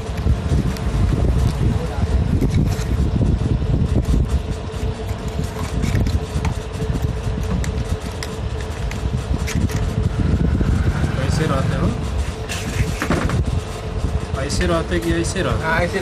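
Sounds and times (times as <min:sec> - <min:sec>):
low rumble of background noise: 0:00.0 - 0:16.0.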